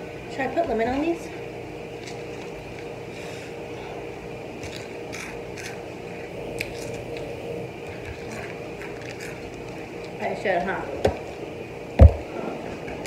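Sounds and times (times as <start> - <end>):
steady low hum: 0.0 - 13.0
crackles and clicks of eating chips: 1.9 - 3.5, 4.5 - 10.4.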